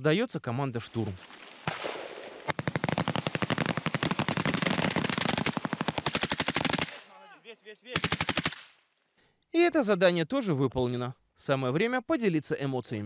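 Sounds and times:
rifles firing on automatic: 1.7 - 7.0, 8.0 - 8.7.

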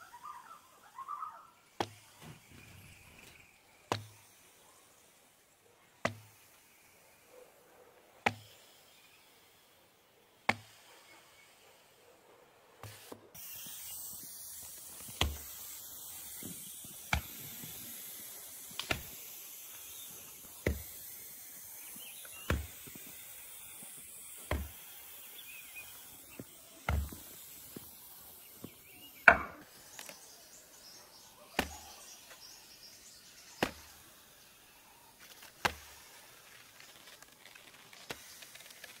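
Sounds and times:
steady hiss: 0.0 - 39.0
heavy ball knocking on blocks: 29.3 - 29.6.

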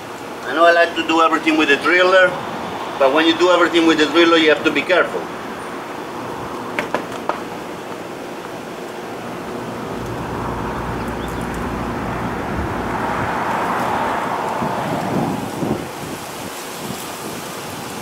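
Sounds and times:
outdoor background noise: 0.0 - 18.0
low rumble: 9.7 - 14.8.

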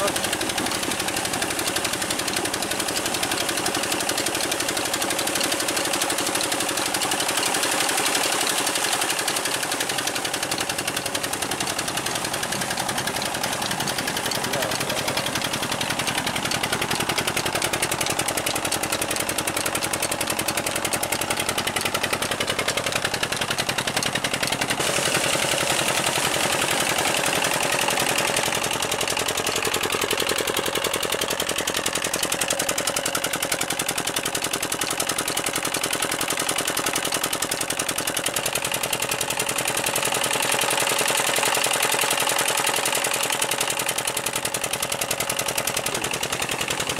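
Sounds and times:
diesel engine exhaust beat: 0.0 - 46.9.

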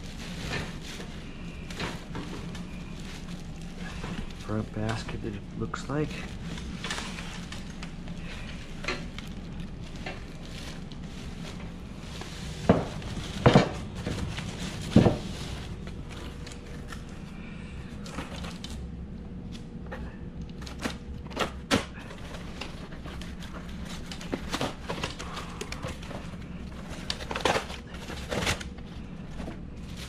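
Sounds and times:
plastic wrap and cardboard rustling: 0.0 - 19.8, 20.5 - 30.0
loud knocks and clanks: 12.6 - 15.3.

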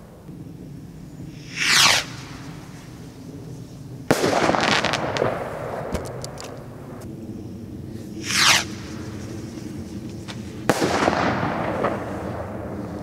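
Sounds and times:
firework rocket whoosh: 1.2 - 7.1, 7.8 - 13.0
firework bang echoing: 4.1 - 7.0, 10.2 - 12.9.

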